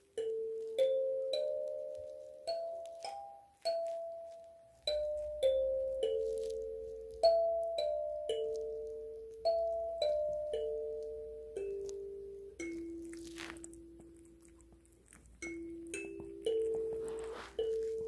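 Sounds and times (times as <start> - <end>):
kalimba notes plucked: 0.0 - 13.4.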